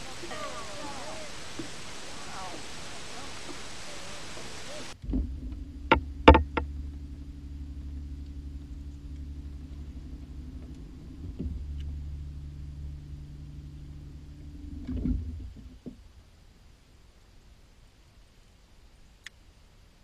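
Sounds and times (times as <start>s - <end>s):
electric trolling motor humming: 0.0s - 15.8s.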